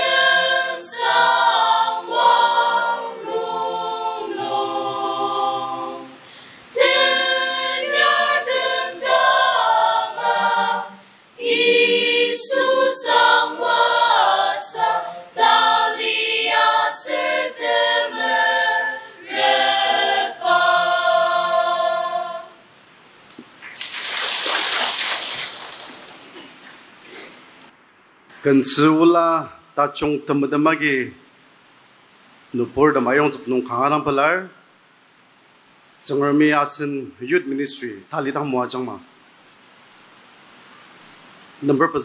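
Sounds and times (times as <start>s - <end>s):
mixed choir singing a hymn: 0.0s - 22.6s.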